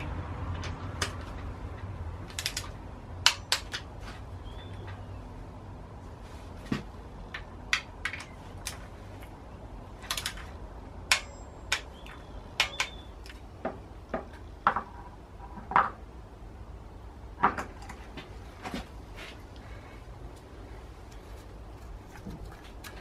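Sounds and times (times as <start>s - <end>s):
metal tools clinking and knocking: 11.1s - 11.9s.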